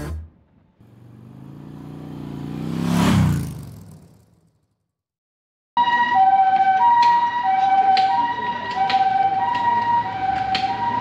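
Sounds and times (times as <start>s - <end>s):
two-tone ambulance siren: 5.8s - 11.0s
street noise clicks: 6.4s - 11.0s.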